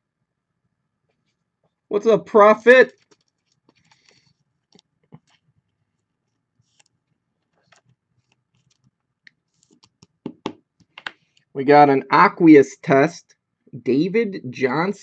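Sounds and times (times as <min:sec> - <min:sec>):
soft rustles of card handling: 0:02.9 - 0:10.2.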